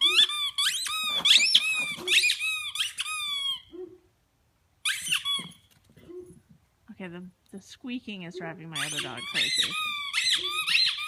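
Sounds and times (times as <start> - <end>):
squeaky toy squeaking: 0.0 - 3.8, 4.8 - 6.2, 8.4 - 11.0.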